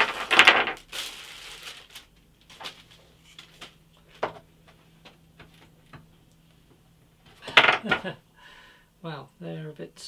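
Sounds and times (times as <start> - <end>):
plastic pieces knocking on wood: 0.0 - 0.8, 7.4 - 8.1
plastic bag rustling: 0.0 - 3.8.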